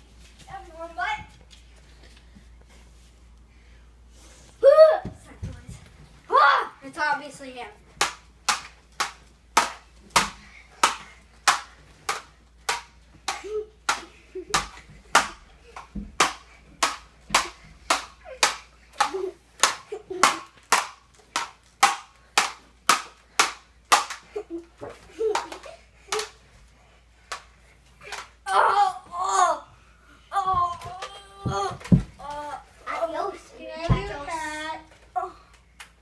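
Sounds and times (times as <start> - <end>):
children's voices: 30.3 - 35.4.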